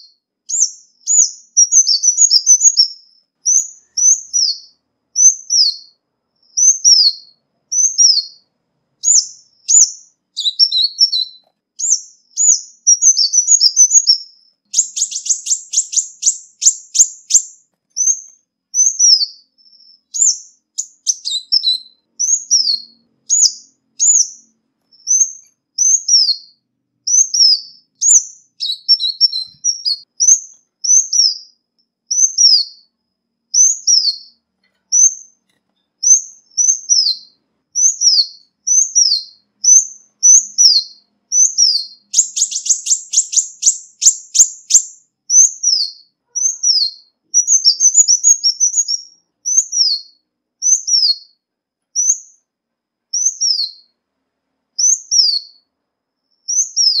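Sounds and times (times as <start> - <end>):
bird high thin calls: 9.0 - 32.9, 36.0 - 51.4.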